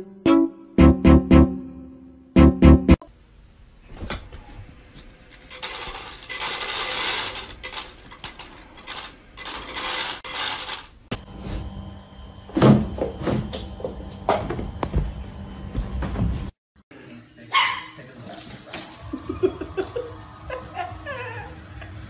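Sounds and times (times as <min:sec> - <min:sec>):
kibble pellets rattling down: 0:05.4 - 0:10.9.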